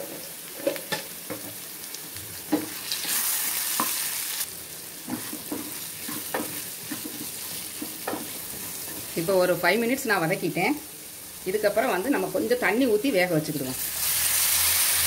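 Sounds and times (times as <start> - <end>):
potatoes sizzling in oil: 0.0 - 15.0
spatula knocking and scraping pan: 5.0 - 9.2.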